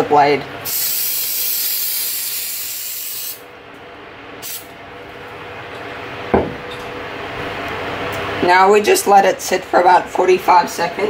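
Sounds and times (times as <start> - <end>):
aerosol can spraying: 0.7 - 3.4
knock: 6.3 - 6.6.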